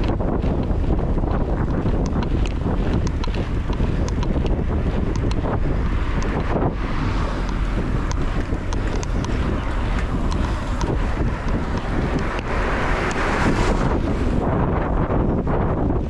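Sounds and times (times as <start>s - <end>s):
faint high ticks: 0.0s - 6.6s, 7.4s - 13.3s
wind buffeting microphone: 0.0s - 16.0s.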